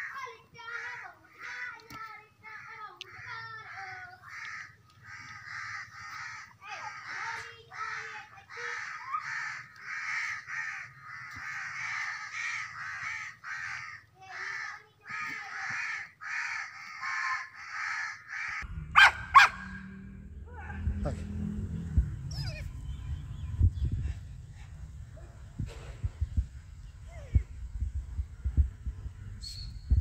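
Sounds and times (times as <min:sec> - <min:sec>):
dog barking: 0:19.0 - 0:19.8.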